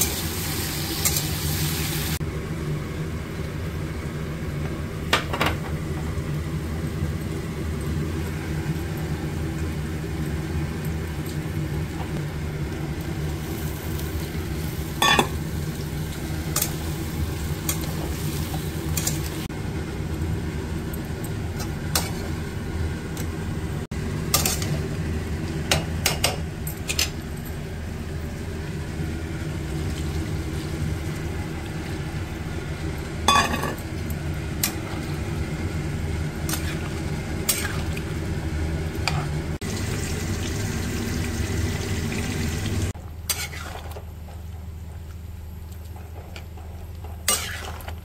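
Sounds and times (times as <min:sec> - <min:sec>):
sizzling hum of cooking: 0:00.0 - 0:48.0
spatula scraping metal pan: 0:43.3 - 0:43.8, 0:47.3 - 0:48.0.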